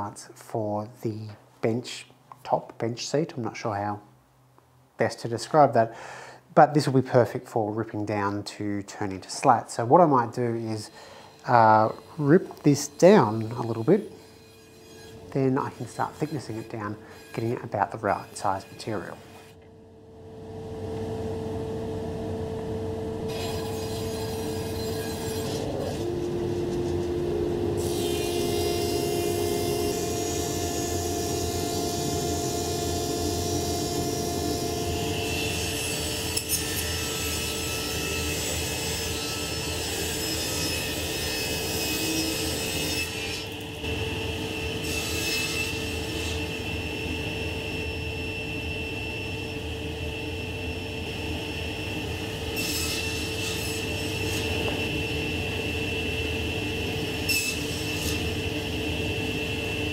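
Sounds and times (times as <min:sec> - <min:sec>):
thickness planer running: 0:20.2 - 0:38.4.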